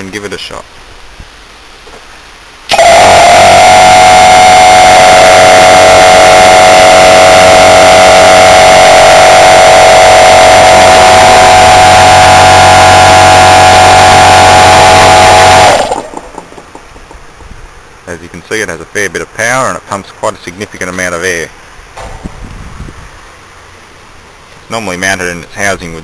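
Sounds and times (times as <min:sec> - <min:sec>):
refrigeration compressor running: 0:02.7 - 0:16.4.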